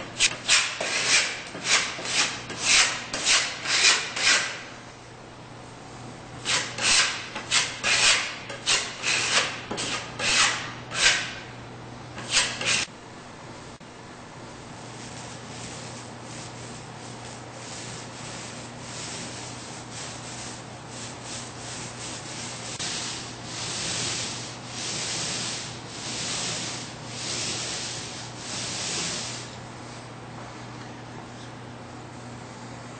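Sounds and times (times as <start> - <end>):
paint roller strokes hissing: 14.8 - 29.6.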